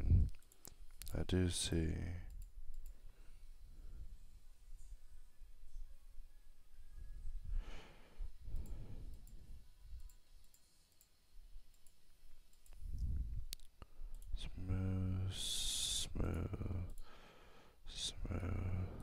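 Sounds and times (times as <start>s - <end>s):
computer mouse clicks: 0.3s - 1.2s, 2.2s - 3.0s, 8.5s - 14.4s
soft breathing: 2.9s - 6.0s, 6.8s - 9.9s, 12.8s - 19.0s.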